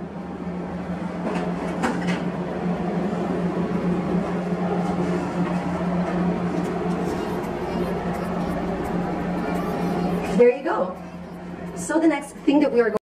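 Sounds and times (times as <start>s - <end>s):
low drone and hiss: 6.3s - 12.9s.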